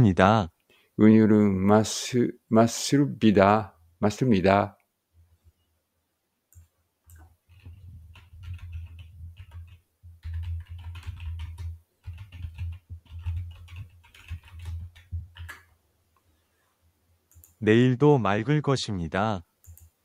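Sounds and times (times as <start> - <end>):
keyboard typing: 6.5 - 15.7, 17.3 - 17.6, 19.6 - 20.0.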